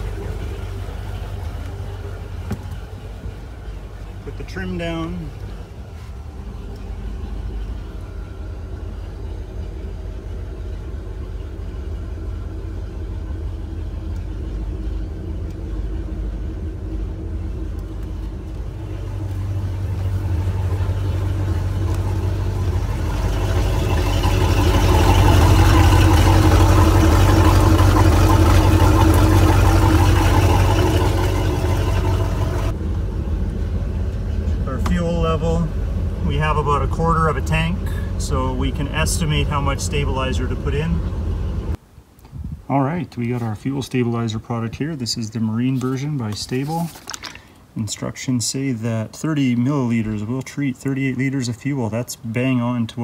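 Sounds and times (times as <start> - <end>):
boat engine rumbling: 0.0 - 53.0.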